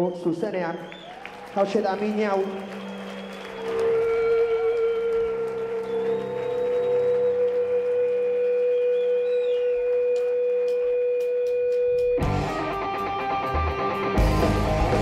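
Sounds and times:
distorted electric guitar chords: 0:03.7 - 0:15.0.

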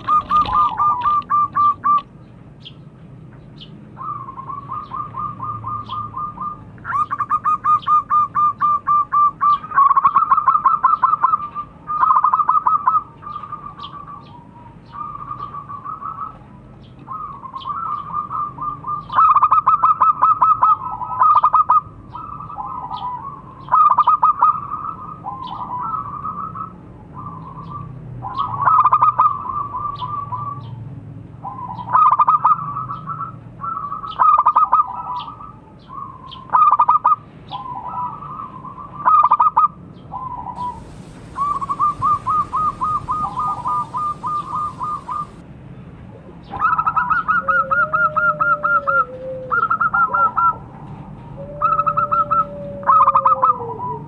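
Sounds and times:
dove cooing: 0:00.0 - 0:02.1, 0:36.6 - 0:45.4, 0:46.4 - 0:50.8, 0:51.4 - 0:54.0.

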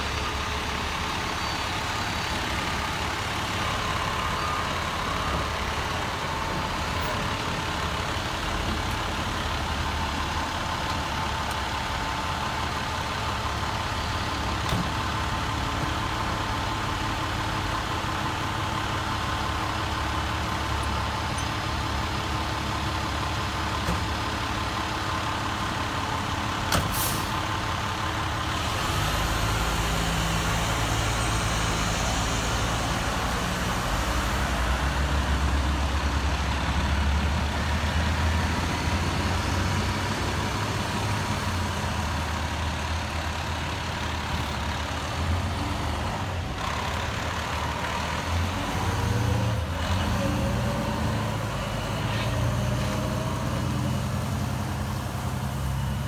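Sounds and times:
diesel engine idling: 0:00.0 - 0:56.0
air brake hiss: 0:26.8 - 0:27.4.

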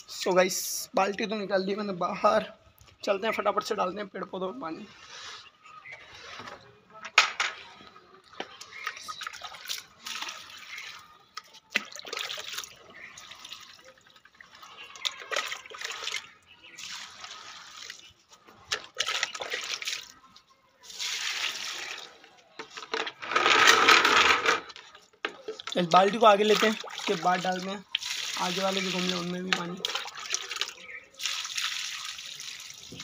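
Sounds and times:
water pouring onto soil: 0:08.8 - 0:20.2, 0:20.8 - 0:22.4, 0:25.5 - 0:33.0.

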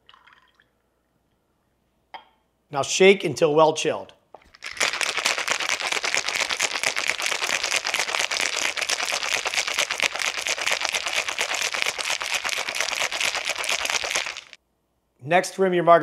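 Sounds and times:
ice rattling in cocktail shaker: 0:04.5 - 0:14.6.

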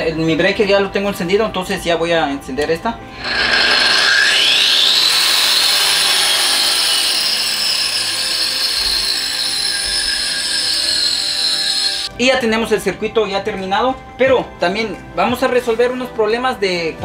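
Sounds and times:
power tool motor whine: 0:03.1 - 0:12.1.

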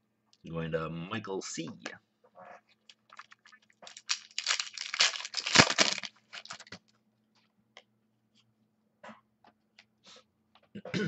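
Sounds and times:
plastic crinkling and rustling: 0:02.8 - 0:07.0.

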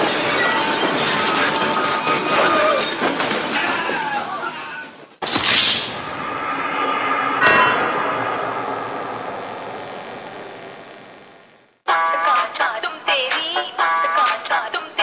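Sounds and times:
crashing and shattering: 0:00.0 - 0:04.2
loud rushing burst: 0:05.2 - 0:11.8.

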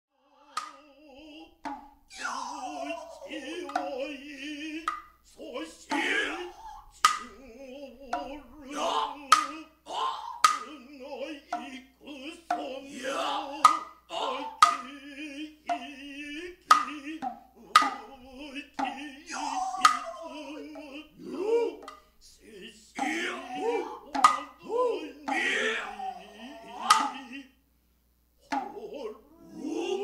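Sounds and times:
chanting voices with vibrato: 0:00.1 - 0:27.6, 0:28.4 - 0:30.0
sharp drum strikes: 0:05.9 - 0:07.4, 0:16.6 - 0:22.1, 0:23.0 - 0:26.0, 0:26.7 - 0:27.3.

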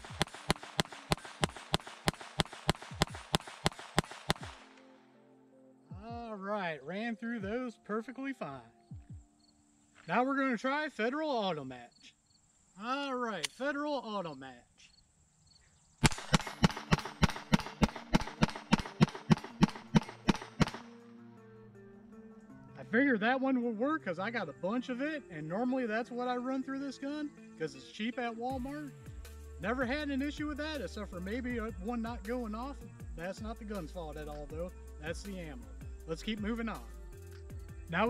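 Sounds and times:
pistol rapid fire: 0:00.0 - 0:04.8, 0:16.0 - 0:20.9.

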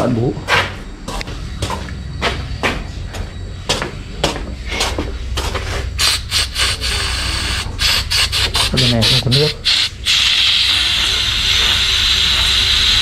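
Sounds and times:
steady low hum: 0:00.0 - 0:13.0
drinker hissing with ticks: 0:05.7 - 0:13.0.

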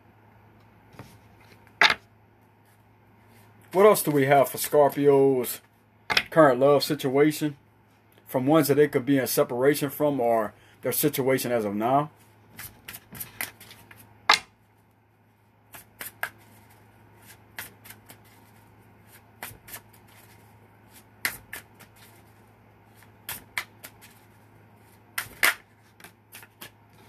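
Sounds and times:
cards being shuffled: 0:12.5 - 0:14.1, 0:15.7 - 0:27.0.

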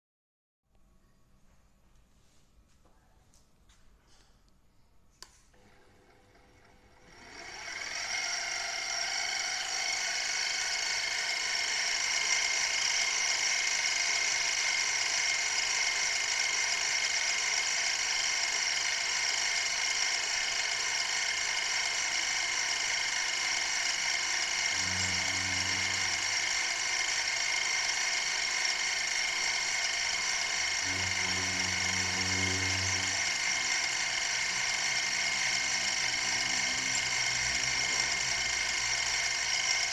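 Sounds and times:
milling machine spindle whine: 0:05.7 - 0:39.9
low hum: 0:24.0 - 0:39.9.

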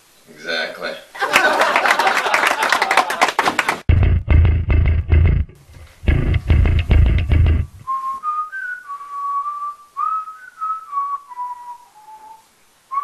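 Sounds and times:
loud burst of music: 0:03.9 - 0:07.8
person whistling a slow tune: 0:07.8 - 0:13.0.

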